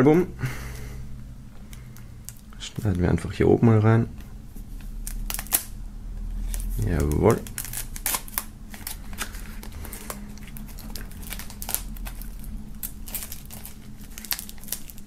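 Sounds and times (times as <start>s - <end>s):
shrink-wrap film crinkling: 4.6s - 15.0s.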